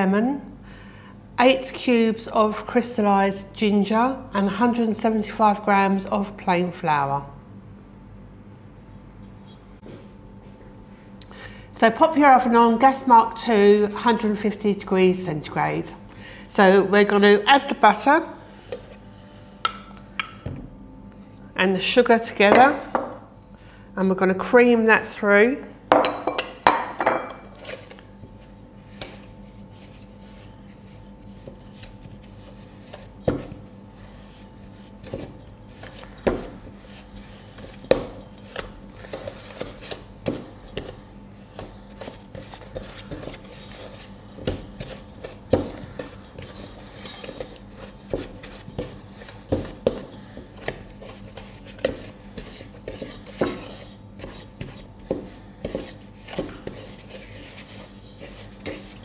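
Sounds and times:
wooden spoon scraping metal bowl: 44.8s - 59.0s.

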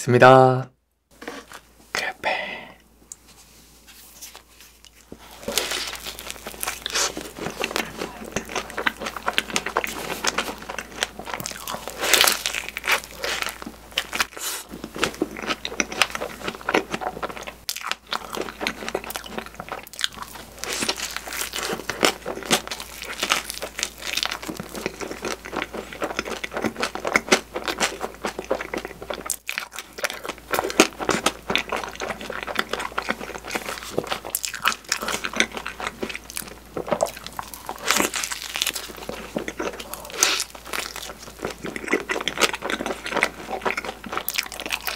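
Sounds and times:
biting soft crepe: 4.3s - 14.8s
wet chewing: 4.4s - 44.9s.

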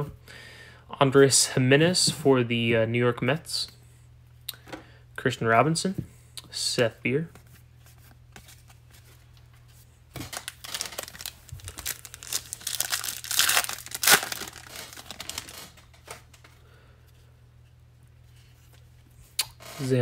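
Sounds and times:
foil wrapper crinkling and tearing: 10.2s - 16.2s.

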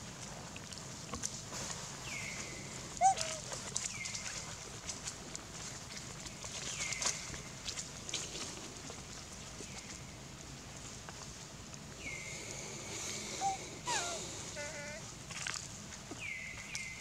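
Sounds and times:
long whistled animal call: 13.2s - 15.0s.

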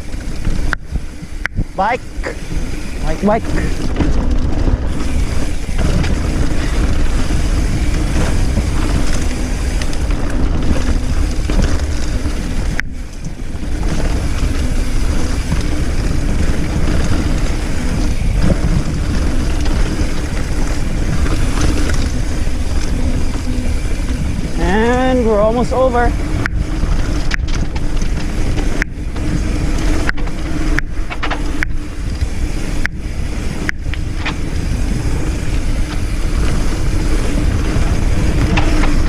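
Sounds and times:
mountain bike rattling on rough trail: 0.0s - 39.0s
wind buffeting microphone: 0.0s - 39.0s.

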